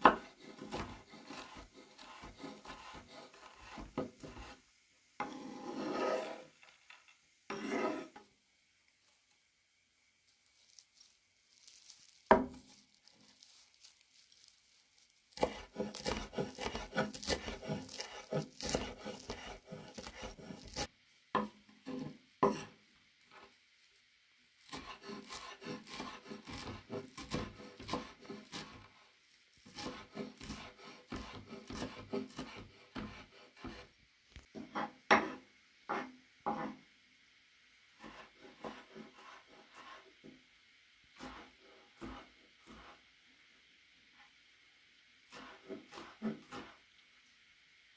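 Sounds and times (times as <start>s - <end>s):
knife chopping on wooden board: 0.0s - 4.5s, 15.4s - 22.7s, 24.7s - 28.8s, 29.7s - 33.8s, 34.6s - 36.8s, 45.3s - 46.7s
blade scraping across board: 0.0s - 4.6s, 5.2s - 6.6s, 7.5s - 8.2s, 15.4s - 20.9s, 29.7s - 33.9s, 38.0s - 40.1s, 45.3s - 46.8s.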